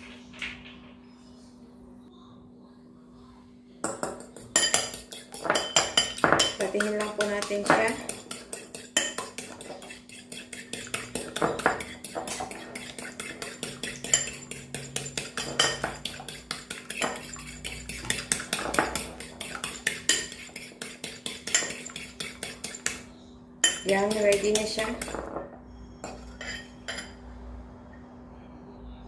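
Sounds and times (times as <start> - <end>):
egg beaten in bowl clicking: 3.9 - 23.0, 23.6 - 25.2.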